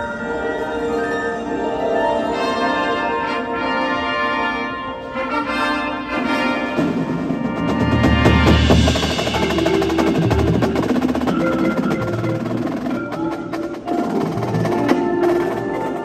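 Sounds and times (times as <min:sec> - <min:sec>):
marimbas ringing notes: 0:08.6 - 0:16.0.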